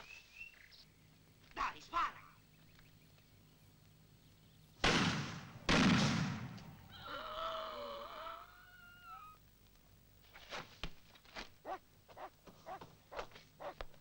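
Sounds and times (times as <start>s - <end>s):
shotgun blasts: 4.8s - 6.8s
long wavering cry: 6.9s - 9.4s.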